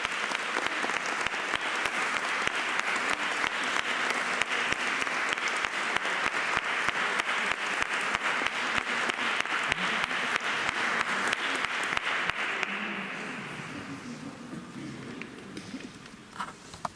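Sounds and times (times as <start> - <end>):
audience applauding: 0.0 - 13.5.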